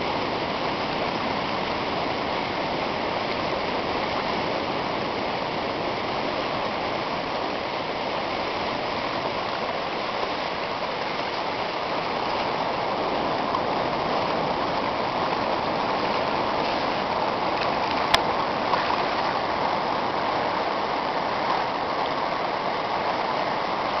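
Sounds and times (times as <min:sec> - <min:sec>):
river water rippling: 0:00.0 - 0:24.0.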